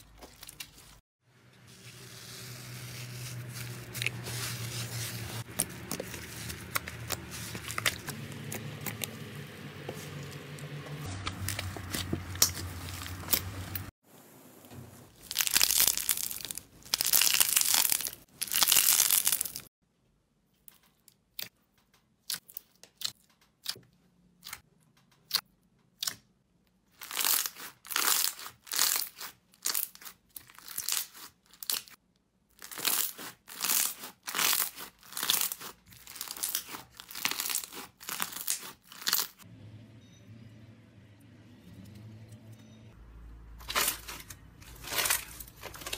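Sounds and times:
slime squishing: 1.9s - 10.5s, 32.6s - 39.4s
slime crackling: 15.2s - 19.7s, 32.6s - 39.4s
slime stretching: 15.2s - 19.7s.

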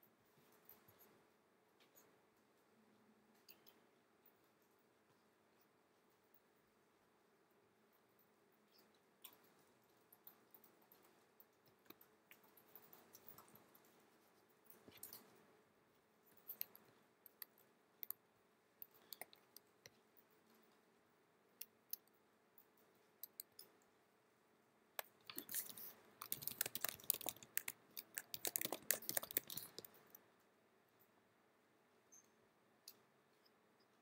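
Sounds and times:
laptop keyboard typing: 16.3s - 20.0s, 25.0s - 30.2s.

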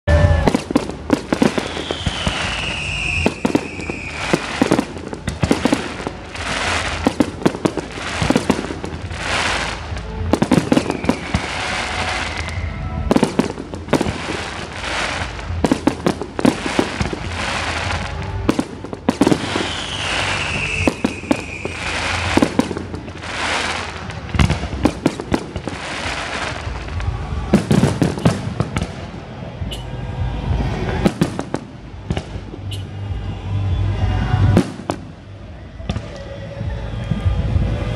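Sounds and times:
falling firework whistle: 0.1s - 28.9s
fireworks bangs: 0.1s - 37.9s.

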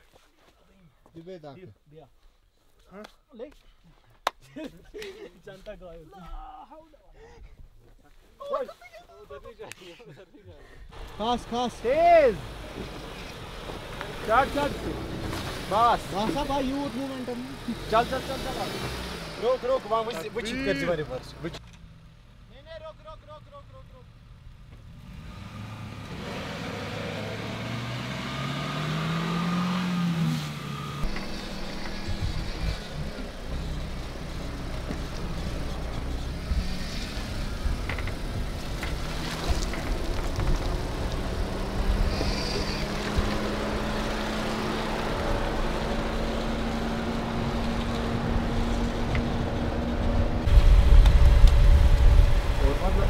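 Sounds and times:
off-road vehicle engine revving: 11.0s - 22.0s, 24.1s - 53.0s.

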